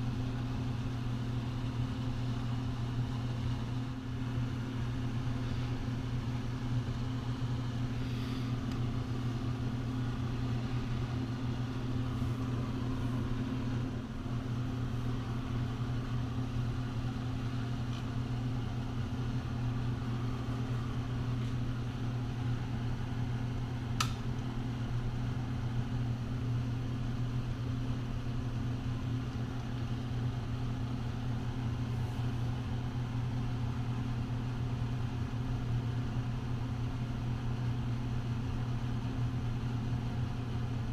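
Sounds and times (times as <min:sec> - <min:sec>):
low motor hum: 0:00.0 - 0:40.9
sharp click: 0:24.0 - 0:24.2.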